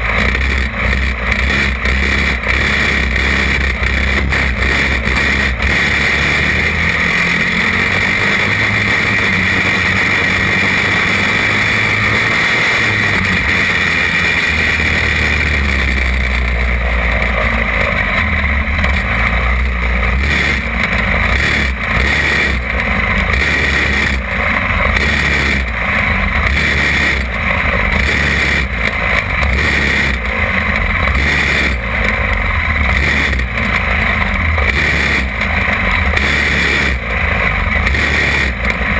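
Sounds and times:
kart engine running hard: 0:00.0 - 0:38.9.

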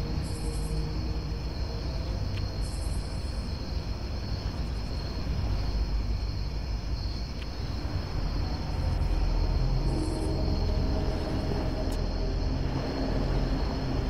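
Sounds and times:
low rumble and hiss: 0:00.0 - 0:14.0
thin steady high tone: 0:07.8 - 0:14.0.

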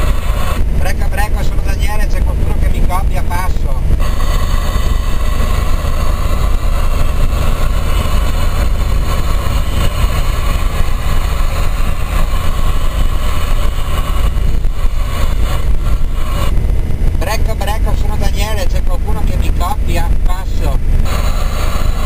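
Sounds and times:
hiss: 0:00.0 - 0:00.6, 0:04.0 - 0:16.6, 0:21.0 - 0:22.0
engine and road rumble: 0:00.0 - 0:22.0.

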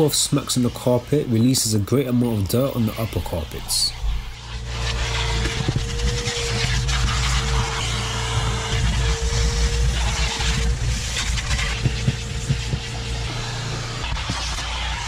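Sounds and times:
vacuum cleaner whining: 0:00.0 - 0:15.0
nozzle knocking on carpet and trim: 0:11.4 - 0:14.5.

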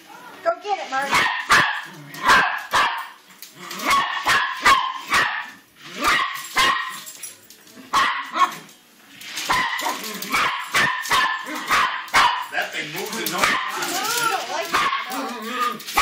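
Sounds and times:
small dog barking: 0:01.1 - 0:03.2, 0:03.8 - 0:07.0, 0:07.9 - 0:08.6, 0:09.5 - 0:12.5, 0:13.4 - 0:13.9, 0:14.7 - 0:15.2.

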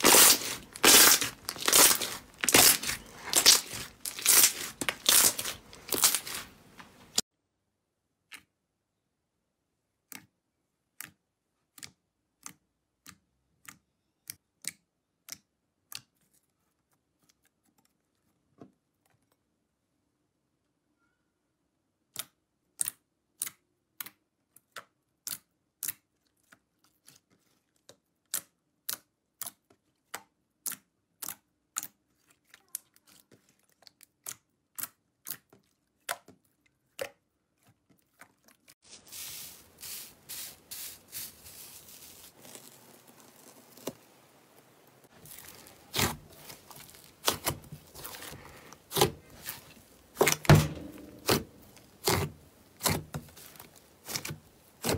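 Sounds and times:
background hiss: 0:38.9 - 0:45.2
wet pops of kneaded slime: 0:45.2 - 0:54.9.

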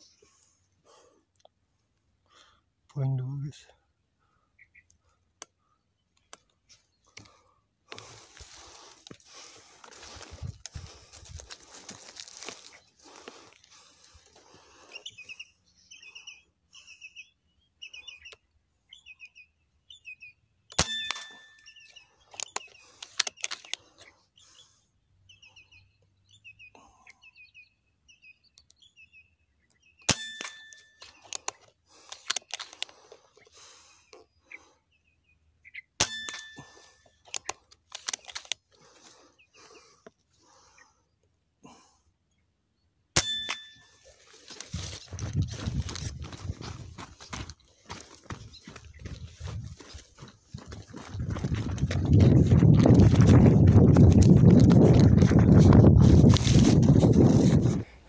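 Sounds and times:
birds chirping: 0:00.0 - 0:56.3
rustling of dry grass and gear: 0:06.5 - 0:15.4, 0:20.8 - 0:24.7, 0:30.4 - 0:34.0, 0:36.3 - 0:40.8, 0:43.5 - 0:58.0
rustling: 0:08.0 - 0:14.4, 0:48.8 - 0:57.9
air rifle shot with ringing ping: 0:20.7 - 0:21.9, 0:30.1 - 0:31.0, 0:36.0 - 0:36.8, 0:43.2 - 0:44.0.

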